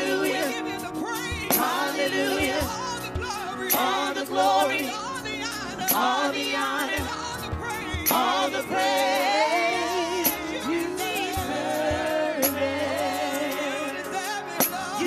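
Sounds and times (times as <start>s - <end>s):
instrumental accompaniment: 0.0s - 15.0s
second singer: 0.0s - 15.0s
woman singing gospel song: 0.0s - 15.0s.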